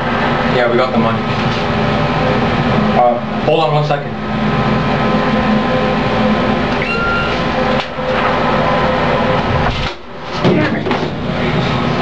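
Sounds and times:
elevator mechanical rumble: 0.0s - 12.0s
brief high tone: 6.8s - 7.4s.

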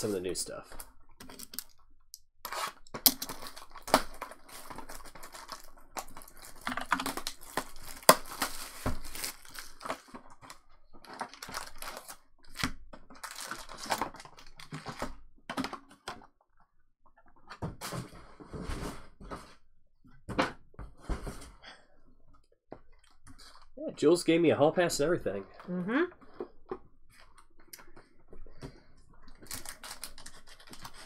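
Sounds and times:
plastic shrink wrap tearing: 2.5s - 15.1s, 29.3s - 31.0s
foil packs crinkling: 2.5s - 15.2s, 29.3s - 31.0s.

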